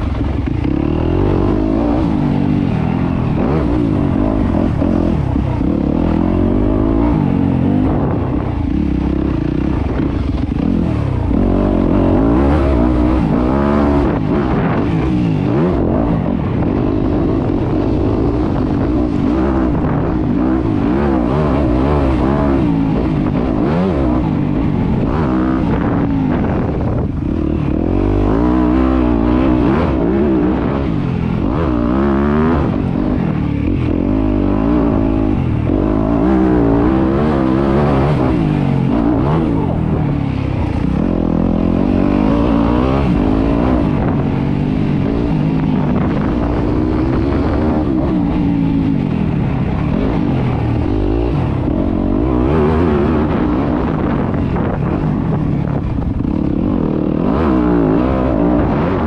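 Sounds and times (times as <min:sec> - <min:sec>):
dirt bike engine revving: 0:00.0 - 0:59.0.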